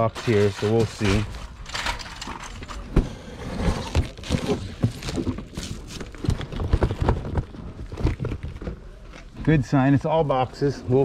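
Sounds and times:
plastic wrap crinkling: 3.8 - 8.7.

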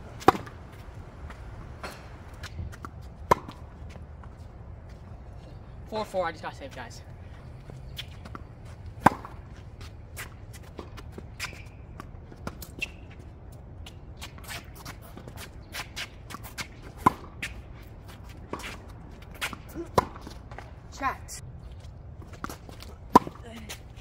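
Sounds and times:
sneakers scuffing on court: 0.1 - 5.6, 6.6 - 20.8
tennis ball struck by racket: 0.2 - 3.7, 9.0 - 9.6, 14.3 - 17.6, 18.5 - 20.7, 22.4 - 23.4.

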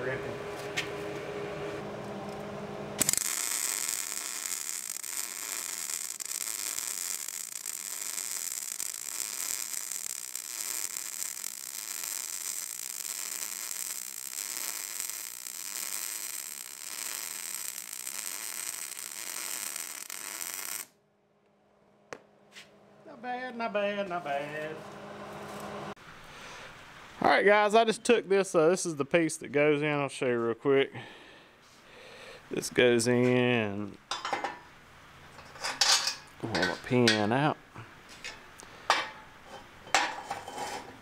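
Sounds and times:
welding arc hissing crackle: 3.0 - 21.0.

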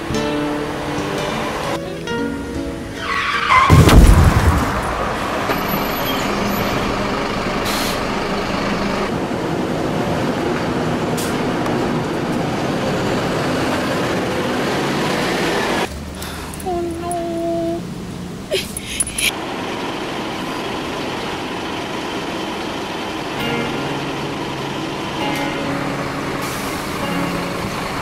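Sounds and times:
bus engine running: 0.0 - 28.0
street noise: 0.0 - 28.0
bus brake squeal: 3.0 - 3.8, 5.5 - 6.9, 7.6 - 8.4, 26.4 - 27.7
loud burst of noise: 3.6 - 9.1.

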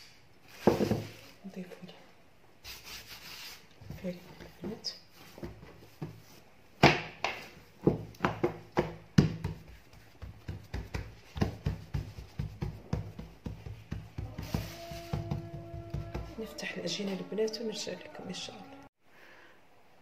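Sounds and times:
hand patting dough: 5.3 - 16.6
dough slapping on table: 6.8 - 16.4.

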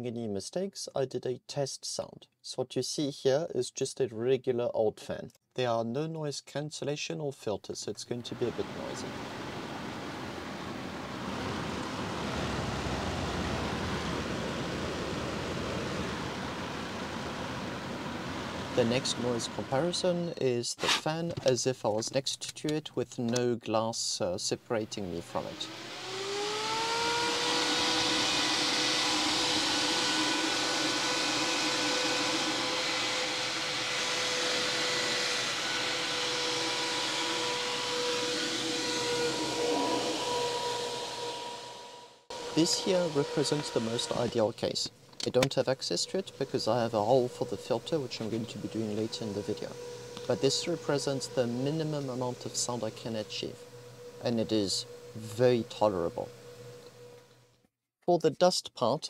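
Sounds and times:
electric fan running: 8.3 - 20.4, 24.9 - 57.4.

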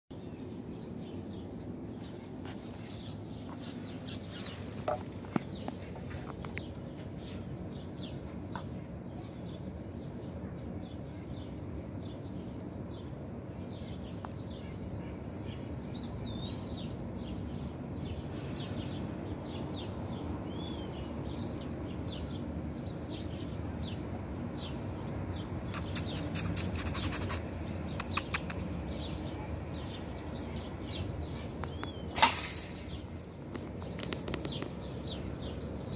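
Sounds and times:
birds chirping: 0.1 - 35.9
sharp clicks: 25.8 - 28.6.

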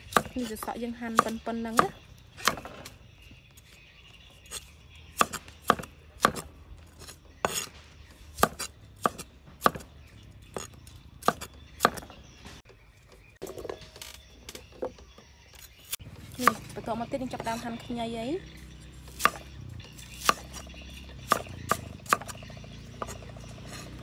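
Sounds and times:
cleaver chopping on wooden block: 0.0 - 2.9, 5.2 - 7.7, 8.4 - 9.9, 10.5 - 12.1, 19.1 - 19.5, 20.1 - 23.9.

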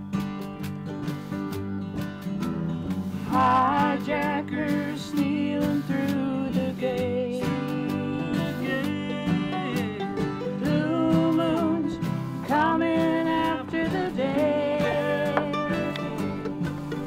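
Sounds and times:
acoustic guitars and mandolins strumming: 0.0 - 17.0
voices singing held notes: 3.3 - 16.7.

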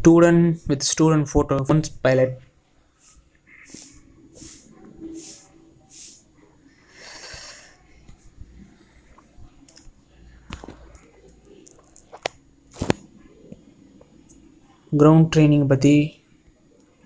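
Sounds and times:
breathy hisses near microphone: 3.0 - 9.2.

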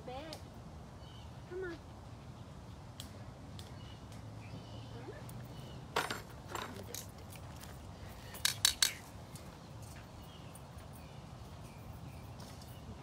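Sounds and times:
metal clinking: 6.0 - 9.0.

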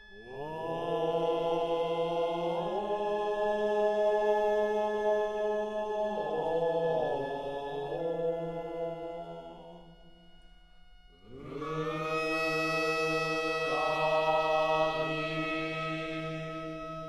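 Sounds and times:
long held chanted notes: 0.0 - 17.0.

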